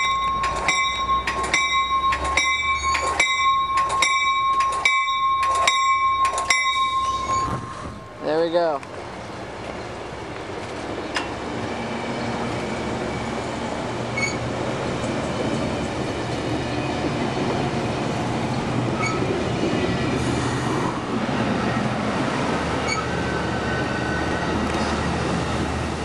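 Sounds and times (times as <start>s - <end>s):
train wheels rumbling on rail: 0.0s - 26.0s
high squeak: 1.1s - 3.2s, 5.5s - 8.0s, 14.2s - 14.4s, 19.0s - 19.3s, 22.8s - 23.1s.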